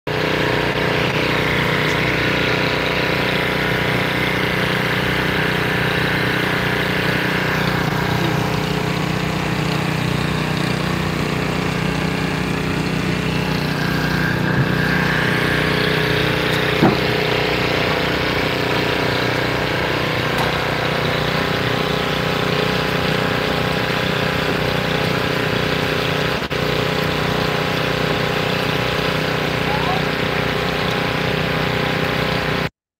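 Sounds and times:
engine idling: 0:00.1 - 0:32.7
short knock: 0:16.8 - 0:17.1.

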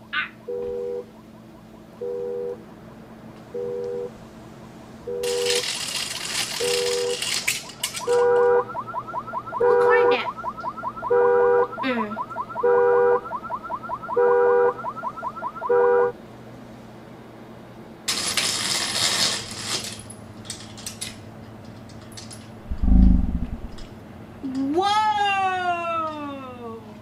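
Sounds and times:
car alarm warbling siren: 0:00.4 - 0:02.6, 0:08.0 - 0:16.1
car horn honking: 0:11.0 - 0:11.7, 0:12.6 - 0:13.2, 0:14.1 - 0:14.8
rustling noise: 0:22.6 - 0:23.9.

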